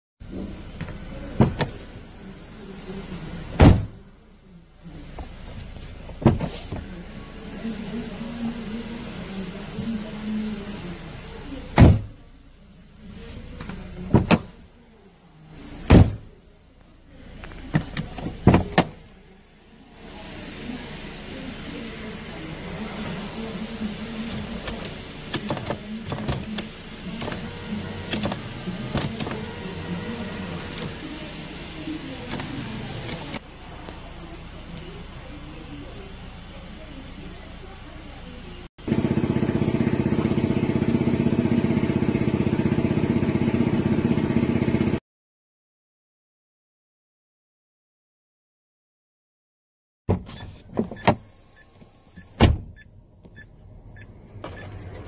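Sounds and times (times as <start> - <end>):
engine idling: 21.0 - 45.0
power-window motor running: 23.0 - 33.4, 38.9 - 45.0, 50.2 - 55.0.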